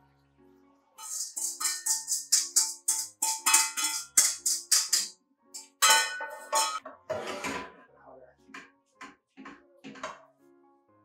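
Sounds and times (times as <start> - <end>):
instrumental music with percussion beat: 1.0 - 6.8.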